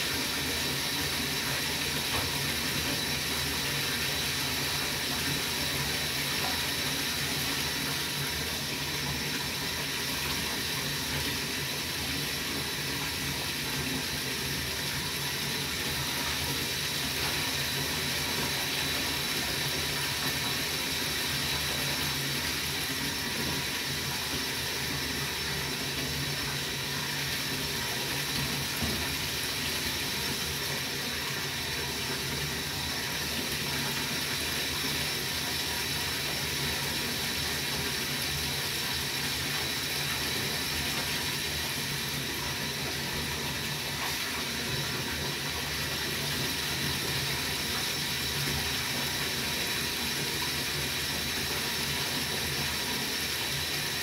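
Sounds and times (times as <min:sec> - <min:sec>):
water running into a bath: 0:00.0 - 0:54.0.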